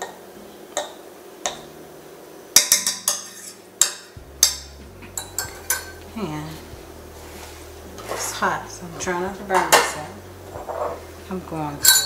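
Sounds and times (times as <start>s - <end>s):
fork scraping a saucepan: 3.1s - 3.7s.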